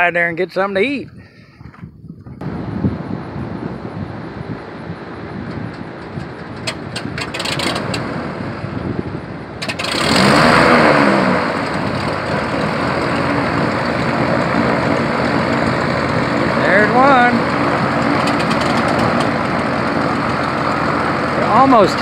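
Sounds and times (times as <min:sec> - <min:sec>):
airplane engines running: 0:00.0 - 0:22.0
sharp clicks: 0:18.1 - 0:19.4.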